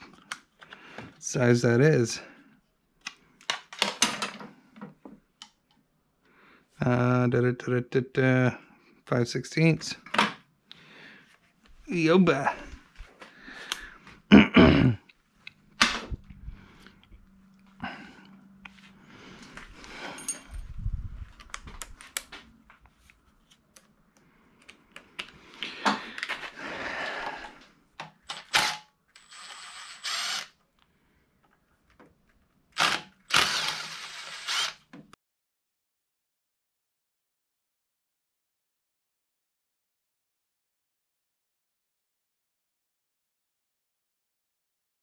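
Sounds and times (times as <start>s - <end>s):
tools knocking and clattering: 3.7s - 5.0s
impact driver bursts: 28.3s - 30.5s, 32.8s - 34.9s.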